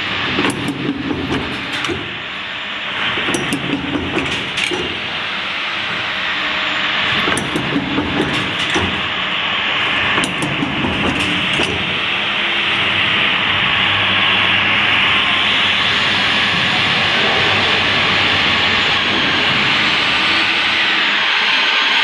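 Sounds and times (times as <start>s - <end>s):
sharp clicks and metal knocks: 0.0s - 2.3s, 3.2s - 5.2s, 7.1s - 9.3s, 10.0s - 12.1s
low hum: 0.0s - 21.5s
machine hissing: 15.3s - 22.0s.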